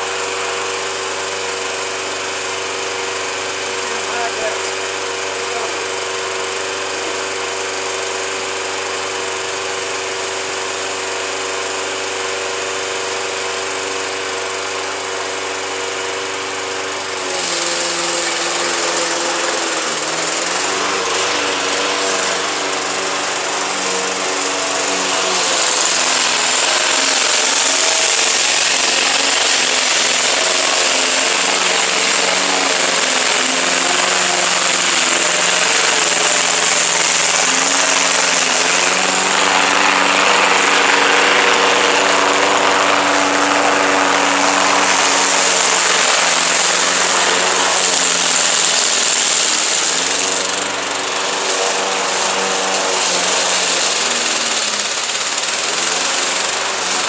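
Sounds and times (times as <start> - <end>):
lawn mower cutting grass: 0.0 - 57.0.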